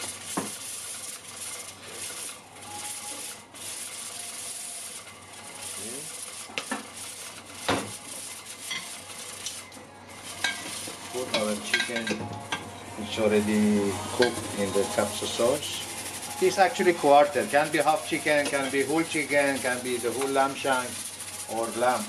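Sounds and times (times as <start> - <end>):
steady high kitchen hiss: 0.0 - 22.0
metal ladle clinking on pots: 11.3 - 12.3.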